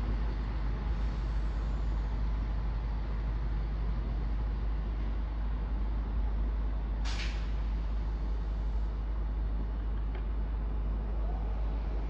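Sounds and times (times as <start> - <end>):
diesel train engines rumbling: 0.0 - 12.0
brief hiss: 7.1 - 7.5.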